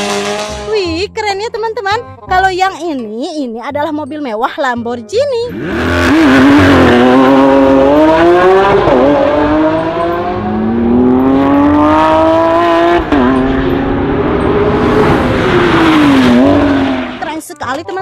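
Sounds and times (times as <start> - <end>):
sports car engine revving: 0.0 - 0.7, 5.5 - 17.3.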